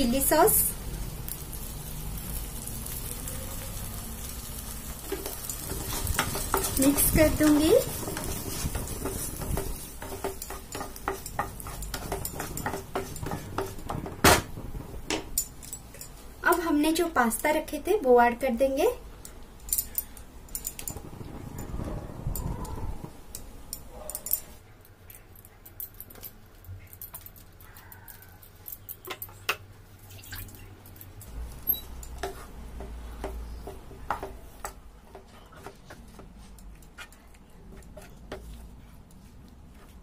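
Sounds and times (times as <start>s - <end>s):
spatula tapping and scraping pan: 5.0s - 16.1s, 31.5s - 40.0s.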